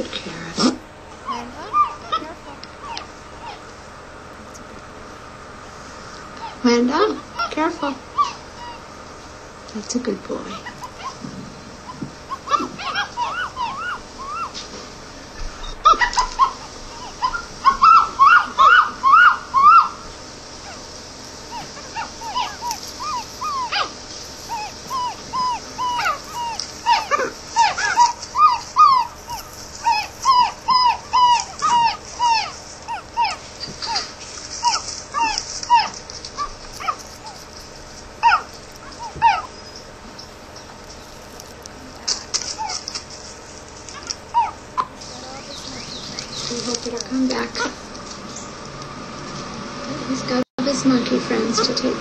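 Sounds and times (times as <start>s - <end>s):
monkey squeaking chirps: 12.3s - 14.6s, 21.5s - 37.5s.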